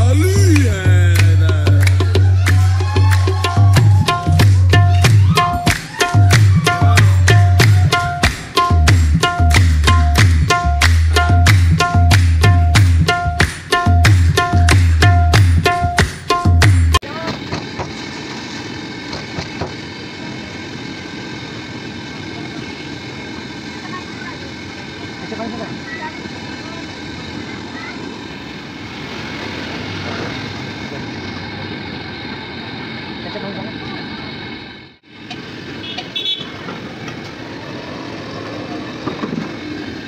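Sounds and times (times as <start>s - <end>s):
roadside background noise: 0.0s - 40.0s
street traffic noise: 0.0s - 40.0s
short vehicle horn toot: 35.8s - 36.6s.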